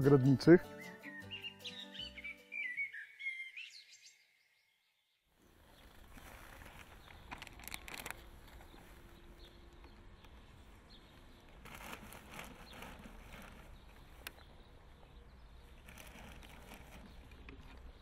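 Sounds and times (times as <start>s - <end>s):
quiet garden ambience: 0.0s - 18.0s
soil rustling and crumbling: 5.4s - 18.0s.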